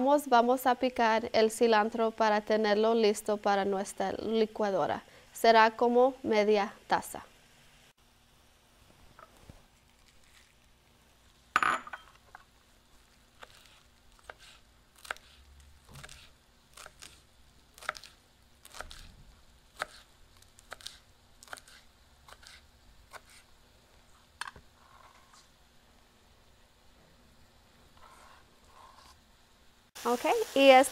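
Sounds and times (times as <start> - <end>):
knife chopping on cutting board: 13.4 - 17.2, 17.8 - 19.1, 19.7 - 20.1, 20.7 - 23.5.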